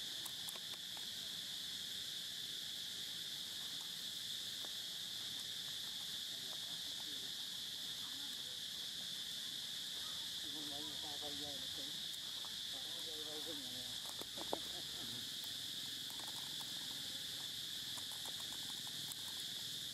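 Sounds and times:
high-pitched insect chorus: 0.0 - 19.9
faint clicks: 15.4 - 19.6.

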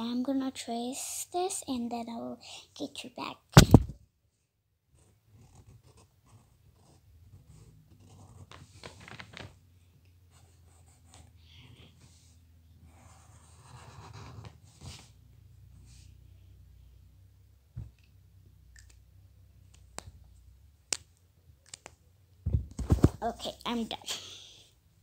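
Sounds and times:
drawing tool scratching on paper: 5.0 - 8.8, 10.3 - 15.1.

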